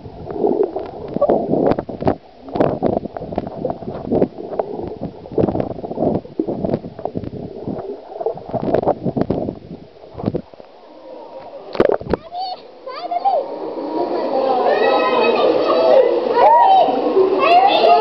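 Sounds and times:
underwater gurgling and bubbling: 0:00.0 - 0:12.2.

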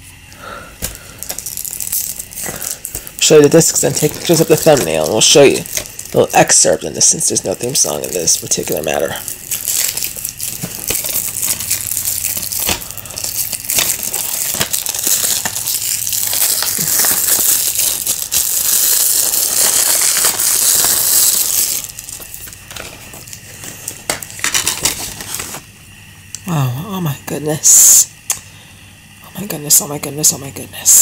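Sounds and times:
plastic wrapping crinkling: 0:00.8 - 0:25.7.

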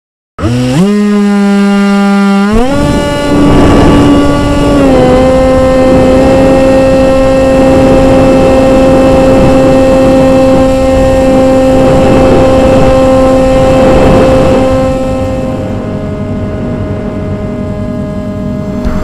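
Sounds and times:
model plane motor buzzing: 0:00.4 - 0:19.0
air rushing past: 0:13.8 - 0:19.0.

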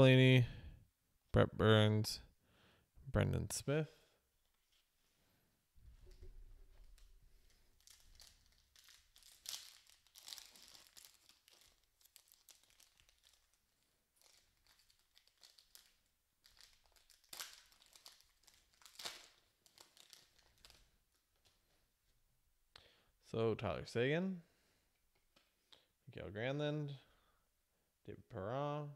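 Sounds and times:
foil wrapper crinkling: 0:06.0 - 0:21.7.

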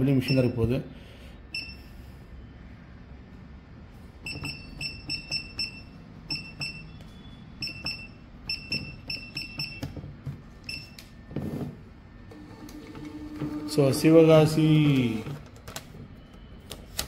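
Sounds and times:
keypad beeps: 0:01.5 - 0:01.8, 0:04.2 - 0:10.0, 0:10.6 - 0:11.3
receipt printer whirr: 0:12.3 - 0:15.6.

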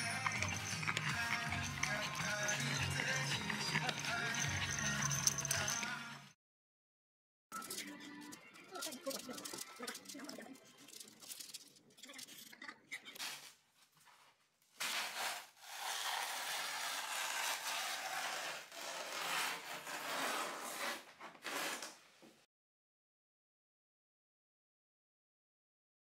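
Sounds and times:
paper rustling: 0:08.8 - 0:12.3, 0:13.2 - 0:18.3.

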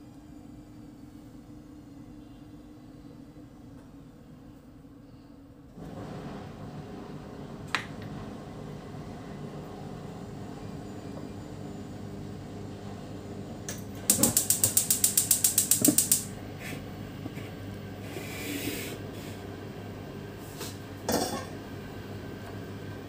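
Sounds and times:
gas hob igniter clicking: 0:13.7 - 0:16.3.

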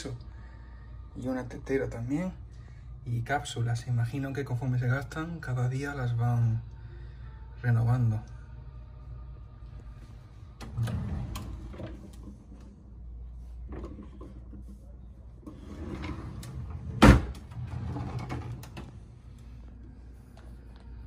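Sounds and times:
wooden drawer being opened: 0:10.6 - 0:12.4, 0:15.4 - 0:18.9.

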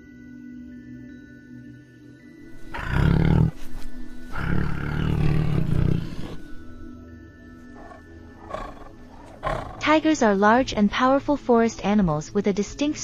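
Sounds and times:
soft background music: 0:00.0 - 0:13.0
tiger roaring: 0:02.5 - 0:06.8, 0:07.7 - 0:09.9.

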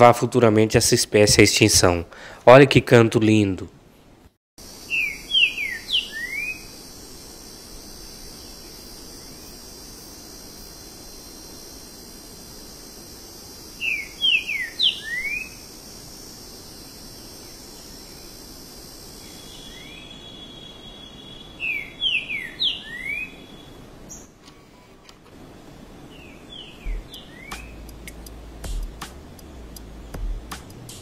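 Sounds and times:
bird singing slurred whistles: 0:04.9 - 0:06.8, 0:13.8 - 0:15.6, 0:19.2 - 0:24.3, 0:26.1 - 0:27.9.

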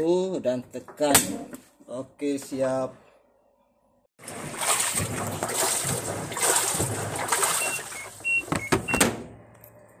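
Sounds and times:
water churning in washing machine: 0:04.2 - 0:08.7.

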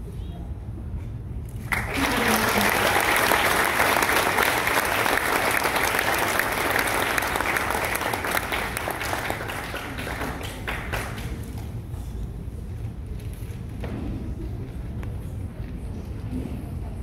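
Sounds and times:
audience applauding: 0:01.6 - 0:11.5.

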